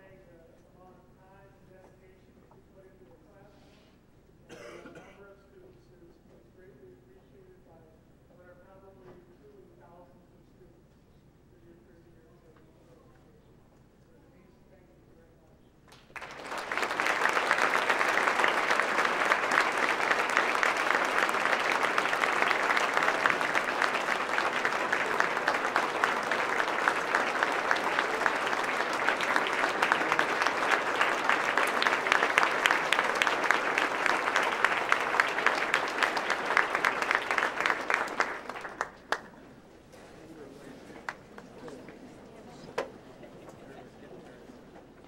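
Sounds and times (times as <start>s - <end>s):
audience applauding: 15.9s - 39.4s.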